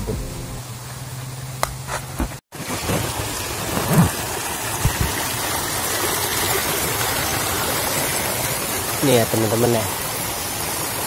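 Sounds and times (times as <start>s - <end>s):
low thumps: 0.0s - 0.7s
stream rushing over rocks: 2.6s - 11.0s.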